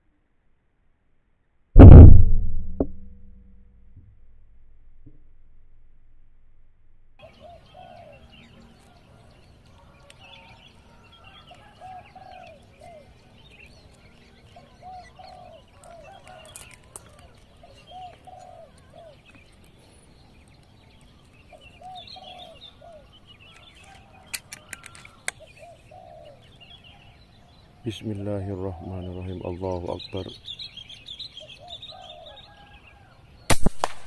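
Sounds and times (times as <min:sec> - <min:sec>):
dove cooing: 0:07.2 - 0:08.5, 0:11.5 - 0:13.2, 0:14.5 - 0:19.3, 0:21.5 - 0:23.2, 0:25.4 - 0:27.1, 0:31.4 - 0:33.1
small birds chirping: 0:07.2 - 0:33.5.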